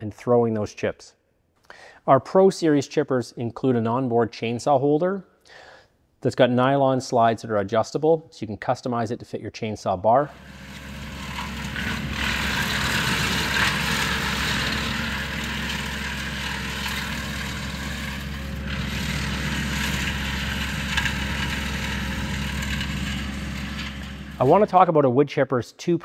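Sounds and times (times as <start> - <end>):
tractor engine hum: 10.3 - 24.8
wood chipper rushing whir: 10.3 - 24.9.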